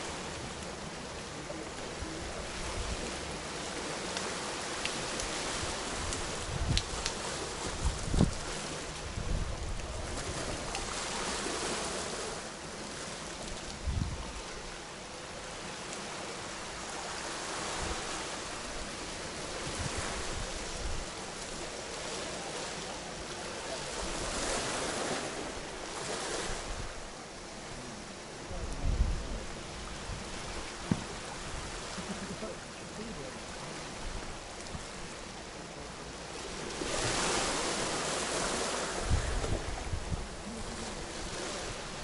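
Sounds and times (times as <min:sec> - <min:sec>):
waves washing up pebble beach: 0:00.0 - 0:14.7, 0:15.5 - 0:27.2, 0:36.3 - 0:42.0
wind buffeting microphone: 0:05.2 - 0:11.3, 0:13.7 - 0:14.7, 0:19.5 - 0:21.2, 0:28.5 - 0:32.0, 0:36.8 - 0:42.0.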